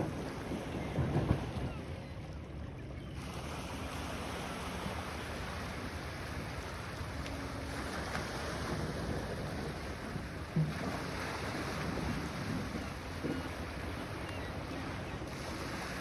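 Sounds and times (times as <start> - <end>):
wind rumbling on microphone: 3.4 - 16.0.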